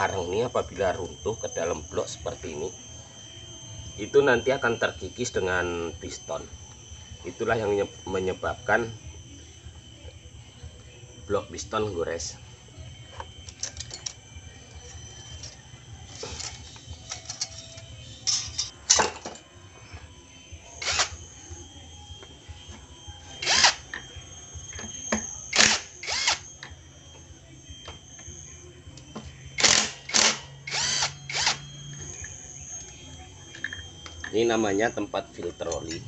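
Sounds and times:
cordless drill motor bursts: 20.8s - 21.6s, 23.2s - 26.6s, 29.5s - 32.8s.

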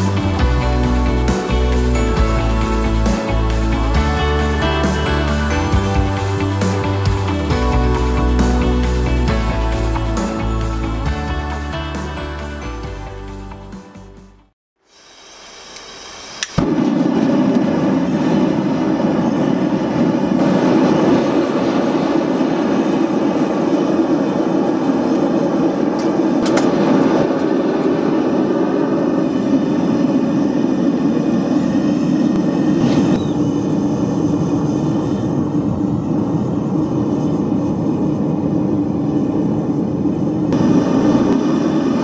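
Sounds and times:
gas forge burner rushing: 15.0s - 42.0s.

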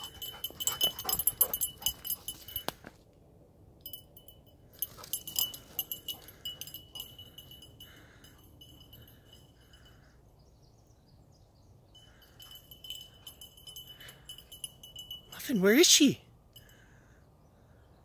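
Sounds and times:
dog collar jingling: 0.0s - 2.8s, 3.8s - 10.1s, 12.0s - 16.8s.

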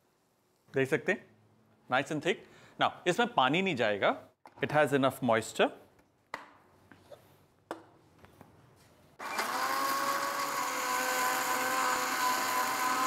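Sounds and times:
mixer grinder motor whine: 9.2s - 13.0s.

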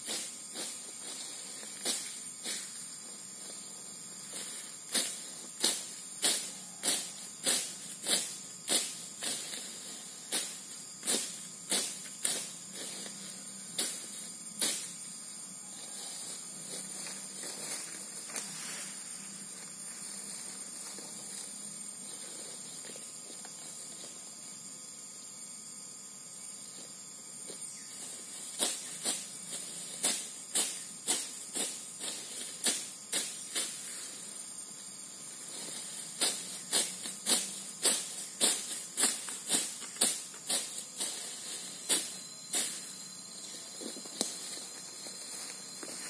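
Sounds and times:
steady high hiss: 0.0s - 46.0s
sickle swishing through grass: 4.2s - 14.9s, 15.8s - 24.1s, 28.0s - 34.3s, 35.4s - 46.0s.

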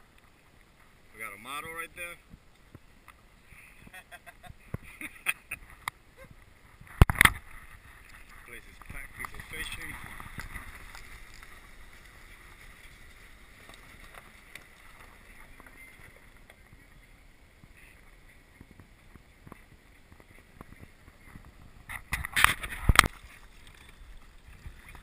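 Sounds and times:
wind on microphone: 3.8s - 14.4s, 15.0s - 25.0s.

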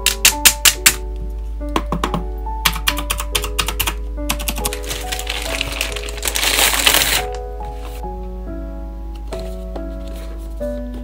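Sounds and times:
background music: 0.0s - 11.0s
mechanical keyboard typing: 1.9s - 7.3s.

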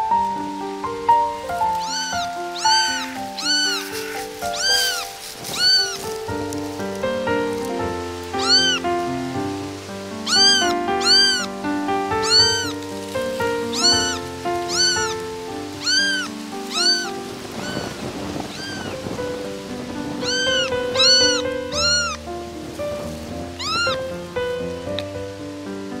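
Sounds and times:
background music: 0.0s - 17.6s
kitten meowing: 1.4s - 6.4s, 8.3s - 8.9s, 10.2s - 19.1s, 20.1s - 22.3s, 23.5s - 24.1s.

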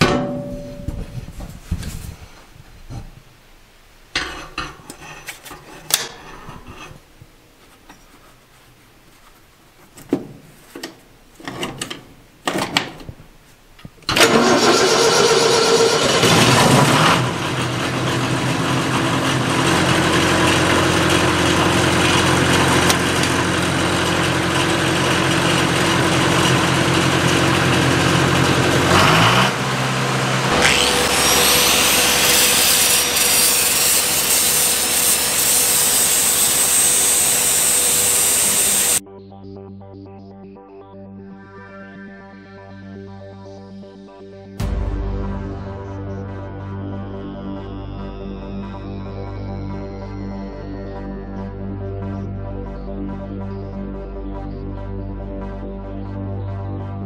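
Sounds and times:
angle grinder whining: 14.1s - 39.0s
diesel engine running: 14.2s - 33.3s.

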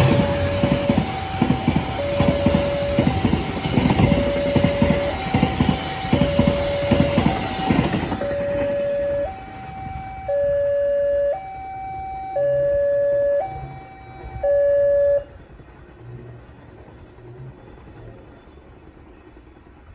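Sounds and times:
train carriages clattering past: 0.0s - 10.6s, 12.4s - 19.9s
two-tone level crossing alarm: 0.0s - 15.3s.

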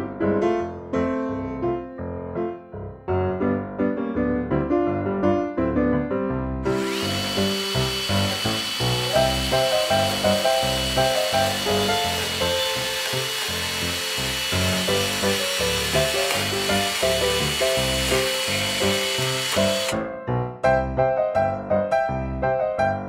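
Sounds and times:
miniature chainsaw cutting wood: 6.7s - 20.0s.

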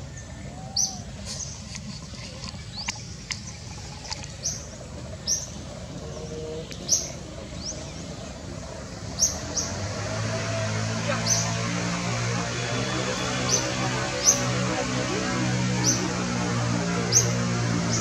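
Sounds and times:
birds chirping: 0.0s - 18.0s
music: 11.0s - 18.0s.

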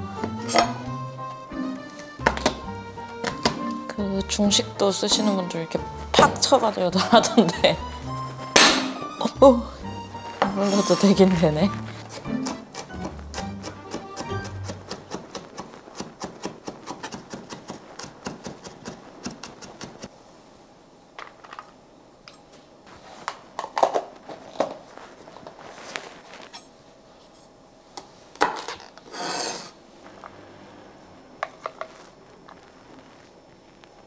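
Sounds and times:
knife chopping on wooden board: 12.0s - 20.0s.

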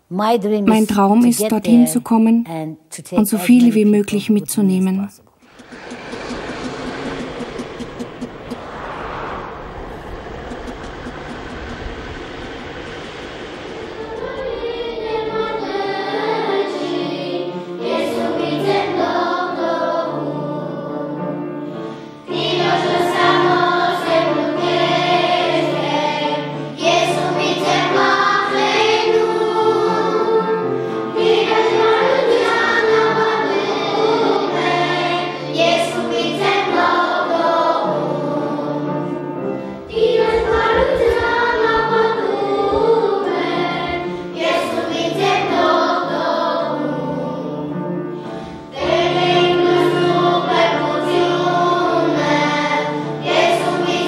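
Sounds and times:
low vehicle rumble: 5.3s - 16.6s, 39.8s - 44.6s
choir singing: 5.4s - 54.0s.

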